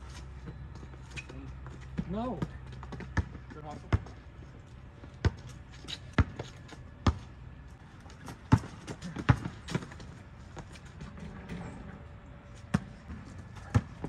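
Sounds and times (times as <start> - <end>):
basketball bouncing on asphalt: 1.6 - 11.1, 12.6 - 14.0.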